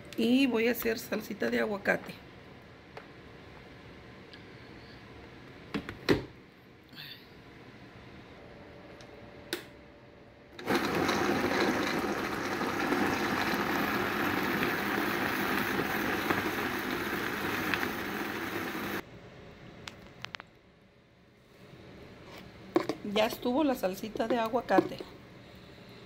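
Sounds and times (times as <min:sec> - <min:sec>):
blender running: 0:10.6 - 0:19.0.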